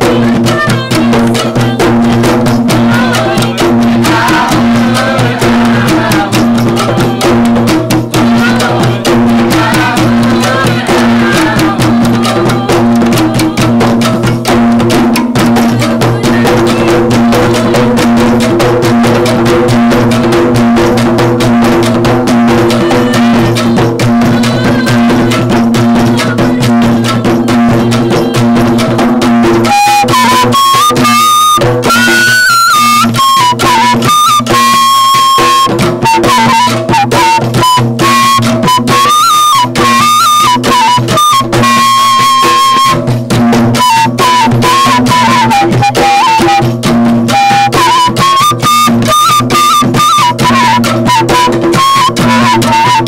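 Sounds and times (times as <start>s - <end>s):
bamboo tube zither struck rhythmically: 0.1s - 30.5s.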